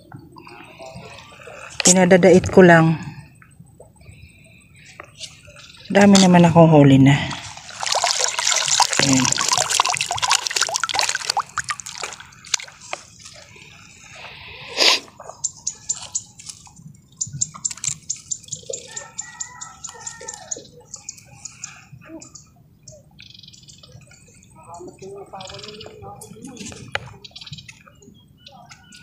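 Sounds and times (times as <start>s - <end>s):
water splashing and dripping: 7.2s - 14.4s, 15.1s - 21.6s.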